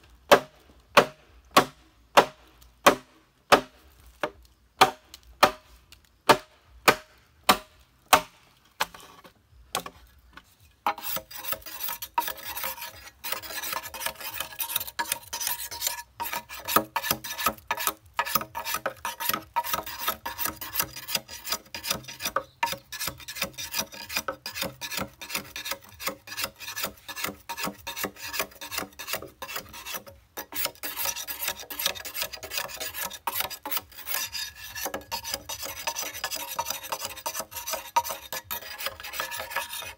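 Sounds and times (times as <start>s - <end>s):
machete chopping bamboo: 0.3s - 9.0s, 9.7s - 10.0s, 13.3s - 34.1s
blade scraping bamboo: 1.0s - 39.9s.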